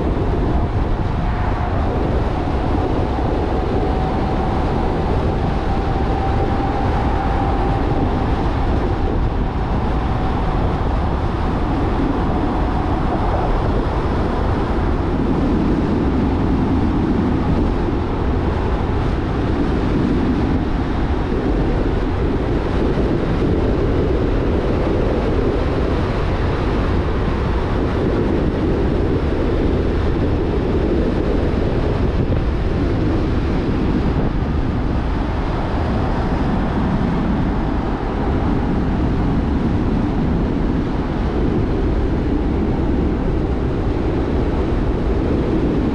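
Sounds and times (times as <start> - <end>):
faint high whine: 0.0 - 20.7
car engine and road noise: 0.0 - 45.9.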